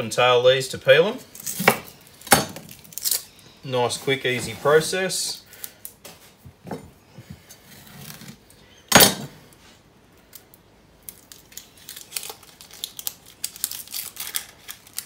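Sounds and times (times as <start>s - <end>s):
onion skin peeling: 1.3s - 3.4s, 10.2s - 15.0s.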